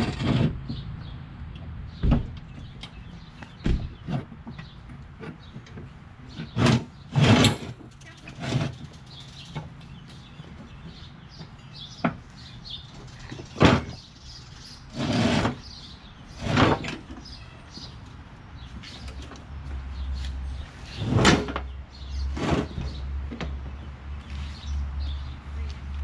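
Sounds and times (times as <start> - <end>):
metal clanks and scrapes: 0.0 - 0.8, 4.0 - 9.7, 14.9 - 15.6, 16.4 - 17.3, 20.9 - 23.0.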